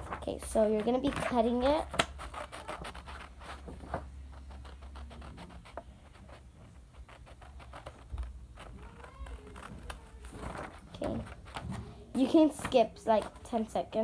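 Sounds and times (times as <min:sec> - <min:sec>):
paper rustling: 0:00.0 - 0:13.8
scissors snipping paper: 0:00.6 - 0:03.8, 0:07.0 - 0:11.7.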